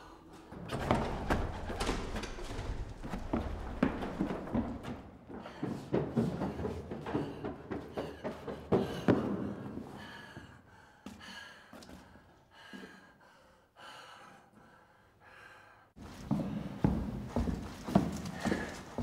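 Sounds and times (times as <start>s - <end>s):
person gasping breaths: 5.3s - 16.8s, 18.0s - 19.0s.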